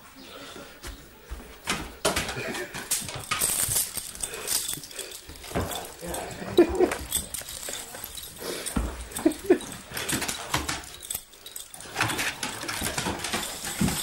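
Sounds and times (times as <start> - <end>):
clicks and shuffling: 0.6 - 14.0.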